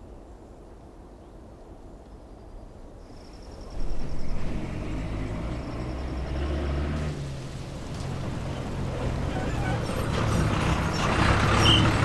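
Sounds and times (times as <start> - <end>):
diesel bus engine droning: 3.8 - 12.0.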